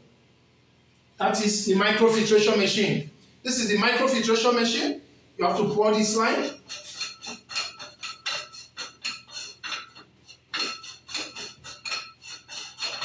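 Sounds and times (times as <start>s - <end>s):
metallic clicks and scrapes: 6.4s - 13.0s.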